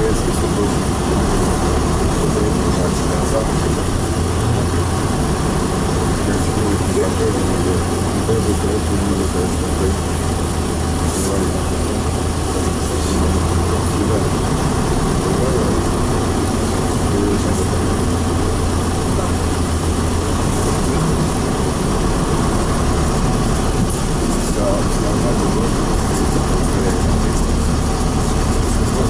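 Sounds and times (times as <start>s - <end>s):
bus engine drone: 0.0s - 29.0s
road noise: 0.0s - 29.0s.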